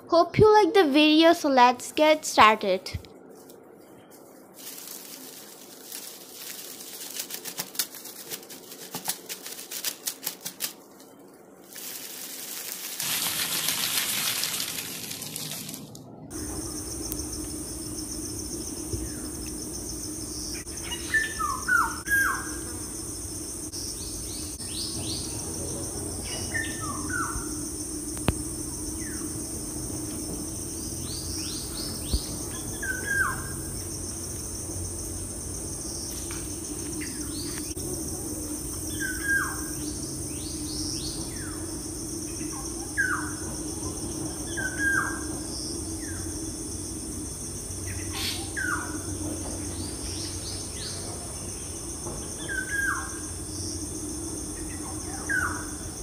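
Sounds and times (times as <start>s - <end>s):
high insect trill: 1.2s - 56.0s
loud hissing rush: 4.4s - 10.8s
rustling and clicking: 4.6s - 13.6s
birds chirping: 16.4s - 27.6s.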